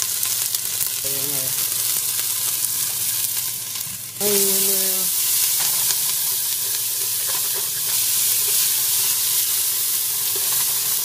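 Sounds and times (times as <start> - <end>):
onion sizzling in oil: 0.0 - 11.0.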